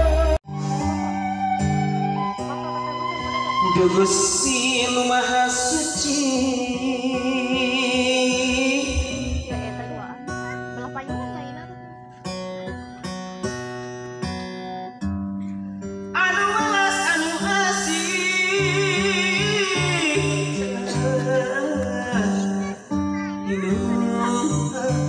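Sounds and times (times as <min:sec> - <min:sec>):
person singing: 0:00.0 - 0:10.8, 0:16.2 - 0:25.0
bass line: 0:00.0 - 0:12.0
plucked string notes: 0:00.0 - 0:25.0.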